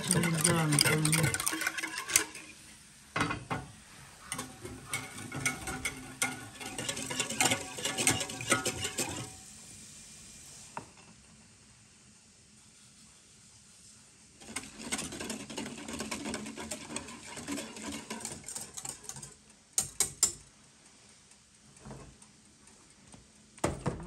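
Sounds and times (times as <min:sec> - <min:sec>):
whisk rattling against a pot: 0:00.0 - 0:02.6, 0:04.2 - 0:09.3, 0:14.4 - 0:20.4.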